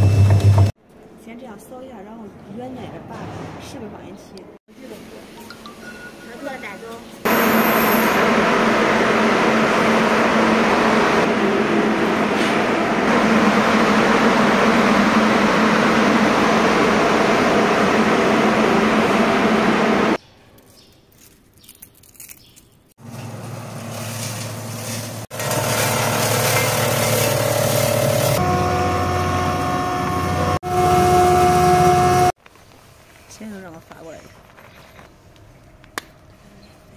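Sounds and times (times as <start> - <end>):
crushing machine humming: 7.3 - 20.2, 23.0 - 32.3
industrial machinery whirring: 7.3 - 20.2, 23.0 - 32.3.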